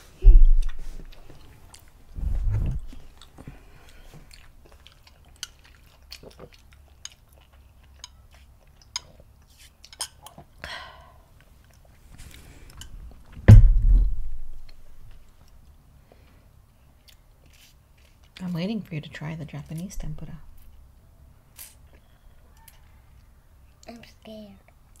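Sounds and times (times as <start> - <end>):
low thumps: 0.0 - 1.2, 2.2 - 3.0, 13.4 - 15.2, 20.0 - 20.6
chewing fried shrimp: 0.7 - 2.1, 2.9 - 10.6, 11.3 - 13.4, 15.1 - 18.9, 20.6 - 25.0.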